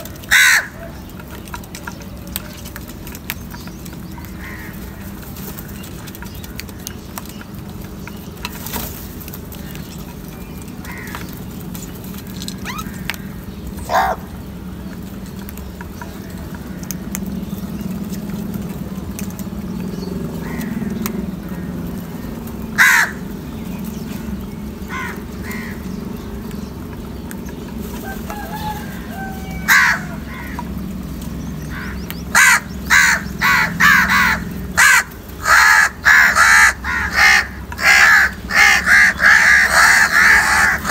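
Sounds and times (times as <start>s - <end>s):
crows cawing: 0.0s - 1.1s, 4.1s - 5.2s, 10.8s - 11.4s, 12.6s - 14.3s, 20.3s - 23.4s, 24.8s - 26.0s, 28.0s - 30.8s, 31.6s - 40.9s.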